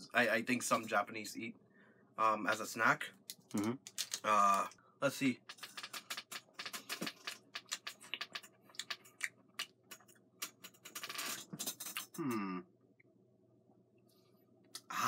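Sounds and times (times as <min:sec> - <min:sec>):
wrapper crackling and crunching: 0:03.5 - 0:04.7
person humming: 0:12.2 - 0:12.6.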